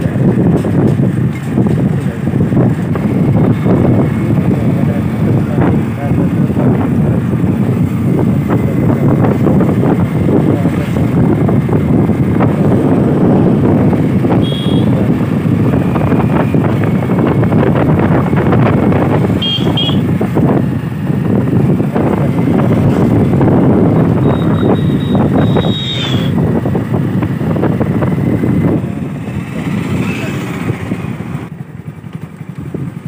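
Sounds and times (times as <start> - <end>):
motorbike engine: 0.0 - 33.0
wind and road noise: 0.0 - 33.0
high horn toots: 14.3 - 15.0, 19.3 - 20.1, 24.0 - 26.4.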